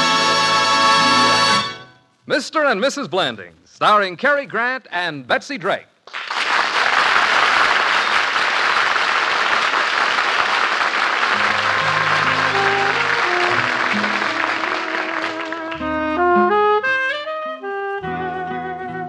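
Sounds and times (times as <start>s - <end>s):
music: 0.0s - 2.2s, 11.3s - 19.0s
audience applauding: 6.0s - 16.5s.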